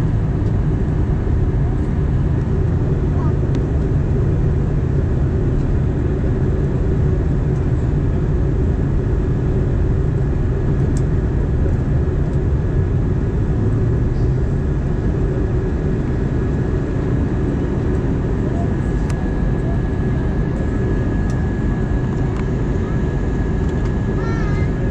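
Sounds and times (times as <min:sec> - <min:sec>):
airplane cabin engine rumble: 0:00.0 - 0:24.9
faint steady whine: 0:00.0 - 0:24.9.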